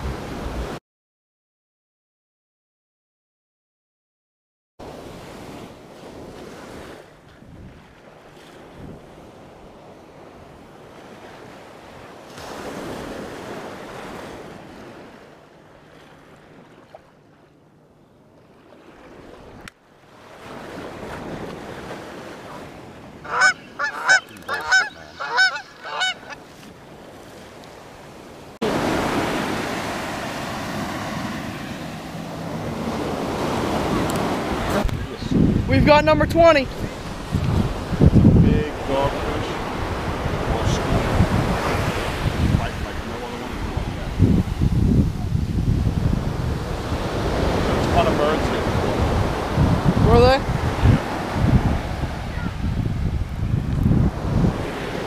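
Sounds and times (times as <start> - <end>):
wind rumble on microphone: 0.0 - 0.8, 5.0 - 10.7, 32.5 - 55.0
ocean surf washing on beach: 4.8 - 17.0, 18.6 - 55.0
loud high calls: 23.3 - 26.4.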